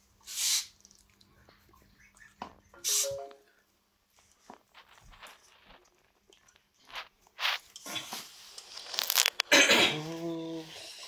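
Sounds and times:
guinea pigs scratching and rustling: 0:04.2 - 0:09.4.

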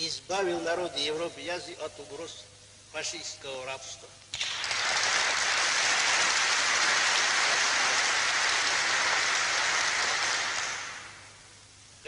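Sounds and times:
audience applauding: 0:04.4 - 0:11.3.

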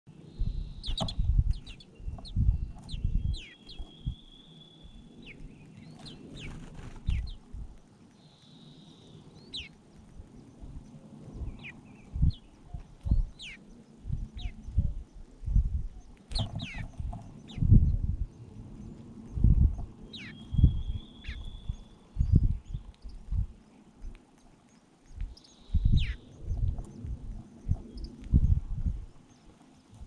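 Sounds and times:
finches chirping: 0:00.3 - 0:30.0
low bumps and rumbles: 0:00.4 - 0:07.8, 0:10.0 - 0:24.2, 0:25.1 - 0:30.0.

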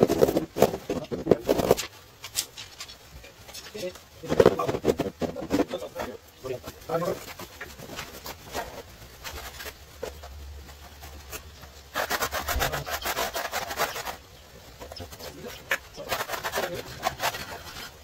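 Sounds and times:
hand tool scraping tiled floor: 0:00.0 - 0:03.0, 0:07.0 - 0:18.0.

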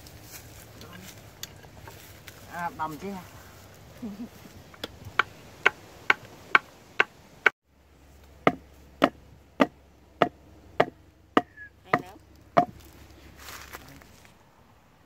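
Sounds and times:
wooden board pounding stake: 0:08.4 - 0:12.8.

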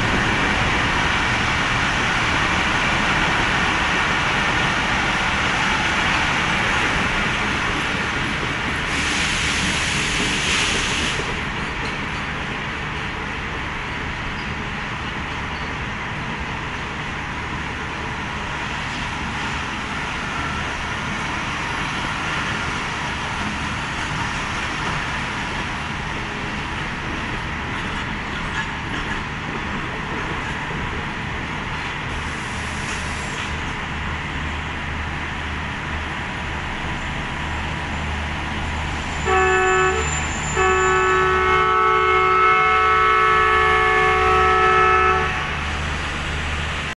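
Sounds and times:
train coaches rumbling on rails: 0:00.0 - 0:46.9
locomotive horn: 0:39.2 - 0:45.6.

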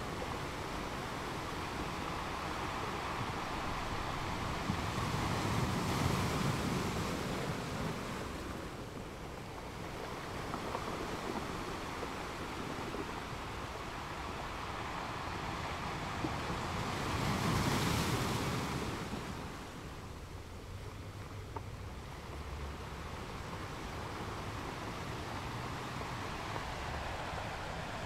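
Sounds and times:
waves breaking on rocky beach: 0:00.0 - 0:28.0.

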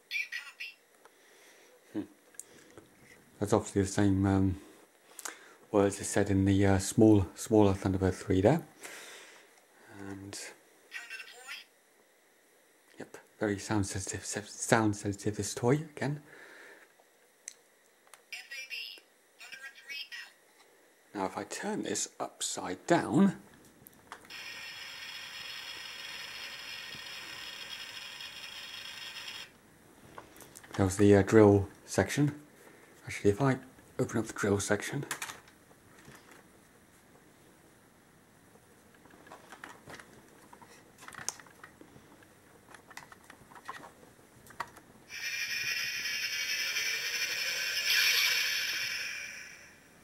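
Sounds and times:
toy electronic drill whirring: 0:24.3 - 0:29.6, 0:45.1 - 0:49.9.

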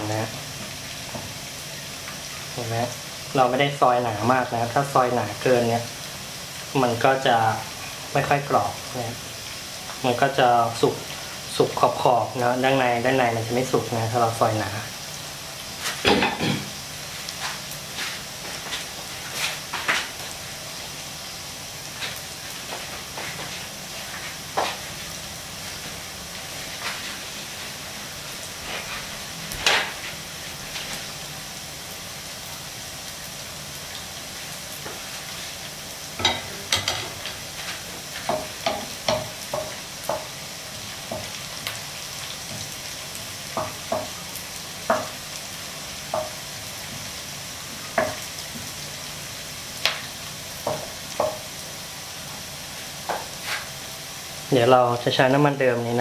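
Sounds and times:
shallots deep-frying in oil: 0:00.0 - 0:56.0
wooden spatula stirring in a pan: 0:21.9 - 0:31.2, 0:34.8 - 0:44.2, 0:50.5 - 0:51.6, 0:52.8 - 0:53.8.

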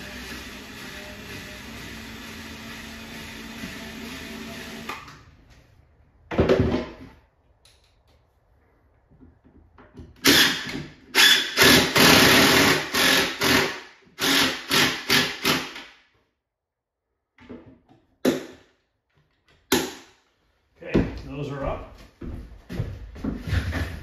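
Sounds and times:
drill driving screws: 0:00.0 - 0:05.1, 0:10.2 - 0:15.9.

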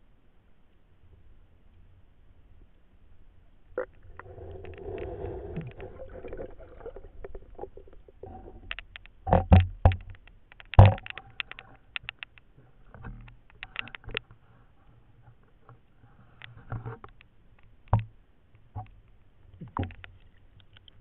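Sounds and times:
water splashing: 0:03.8 - 0:09.0
muffled underwater swishing: 0:04.0 - 0:08.8.

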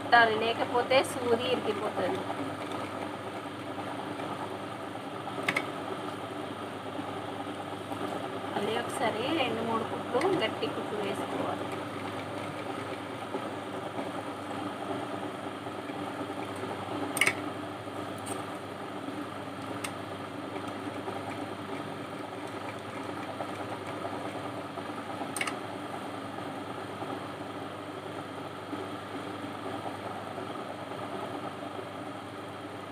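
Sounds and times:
sewing machine running: 0:00.0 - 0:17.6, 0:18.2 - 0:25.5.

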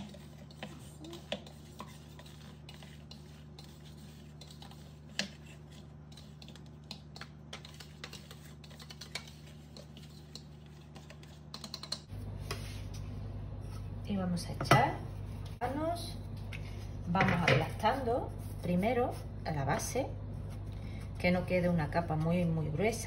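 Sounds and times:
spoon scraping plastic bowl: 0:00.0 - 0:12.0.

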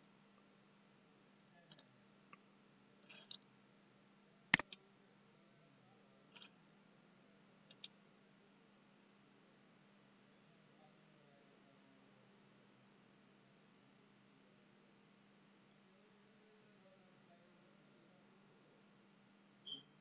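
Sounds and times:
faint steady hum: 0:00.0 - 0:20.0
computer mouse clicking: 0:03.0 - 0:03.4, 0:04.6 - 0:04.8, 0:07.7 - 0:07.9.

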